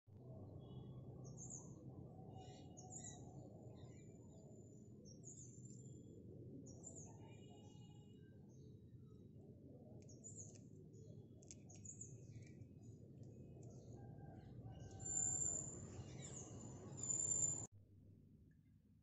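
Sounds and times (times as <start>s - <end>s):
faint birds chirping: 10.0s - 17.7s.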